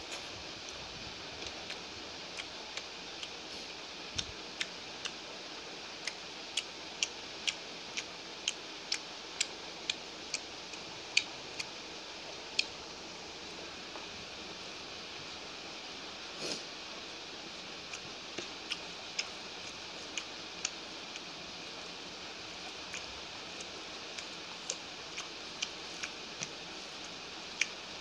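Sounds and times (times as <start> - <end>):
steady hiss: 0.0 - 28.0
person chewing with mouth clicks: 1.4 - 5.2, 6.0 - 11.7, 17.8 - 21.3, 22.6 - 27.8.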